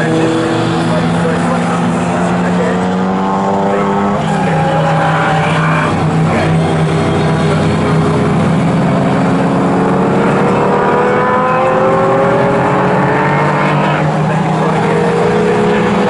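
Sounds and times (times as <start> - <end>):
racing car engine accelerating: 0.0 - 16.0.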